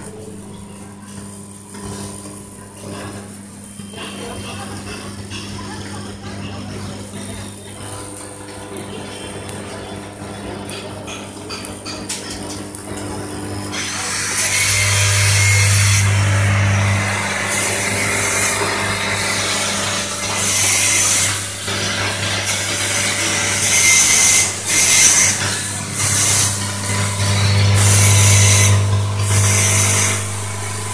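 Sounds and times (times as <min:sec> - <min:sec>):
bowl feeder humming: 0:14.4 - 0:21.6, 0:24.4 - 0:30.9.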